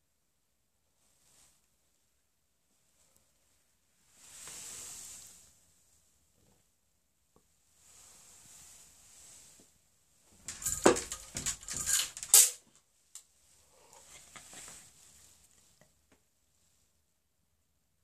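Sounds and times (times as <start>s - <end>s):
beaded chain rattling on door: 10.4s - 12.5s.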